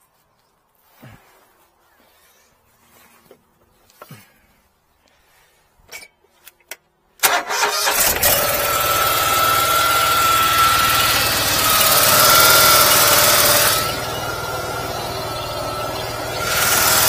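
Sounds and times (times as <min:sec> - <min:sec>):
engine starting and running: 0:07.2 - 0:17.0.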